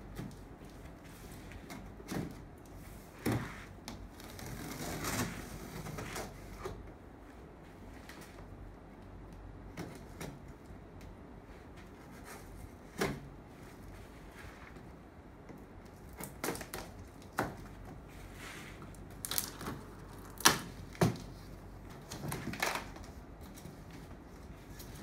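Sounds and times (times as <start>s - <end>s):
cardboard scraping rustle: 2.7s - 6.8s, 11.5s - 15.0s, 17.7s - 25.0s.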